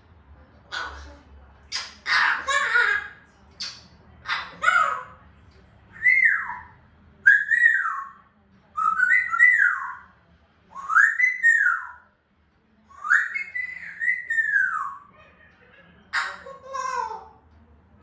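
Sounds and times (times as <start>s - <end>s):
parrot whistling: 5.9s - 8.2s, 8.8s - 10.0s, 10.7s - 12.0s, 12.9s - 15.1s.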